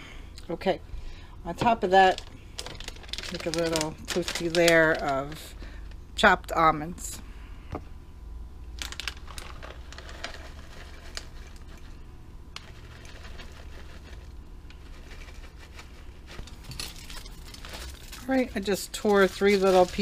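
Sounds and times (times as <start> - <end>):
plastic bag crinkling: 1.8 - 5.6, 8.8 - 12.0, 12.6 - 20.0
nut pieces ticking into jars: 2.1 - 5.4, 8.8 - 11.6.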